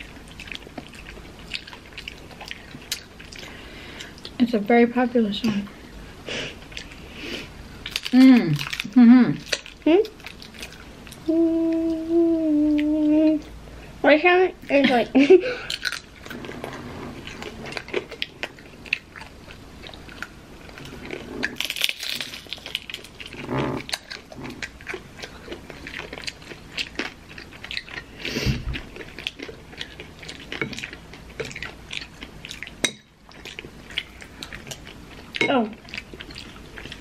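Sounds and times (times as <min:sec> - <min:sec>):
people chewing crunchy food: 0:00.0 - 0:04.4, 0:05.8 - 0:13.9, 0:14.7 - 0:37.0
mouth sounds: 0:11.2 - 0:13.5.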